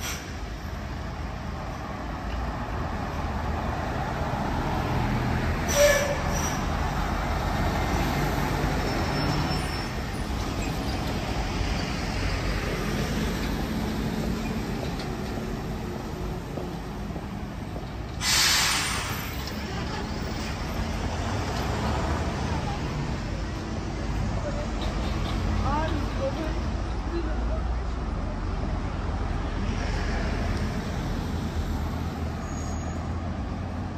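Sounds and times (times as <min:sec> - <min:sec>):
traffic rumble: 0:00.0 - 0:33.9
short loud hiss: 0:18.2 - 0:19.3.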